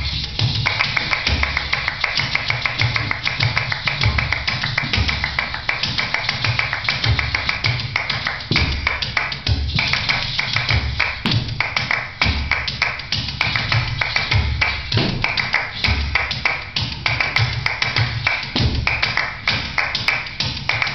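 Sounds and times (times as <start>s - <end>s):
deep beat: 0.0s - 20.9s
fast percussive dance music: 0.0s - 20.9s
rapid tapping strokes: 0.0s - 20.9s.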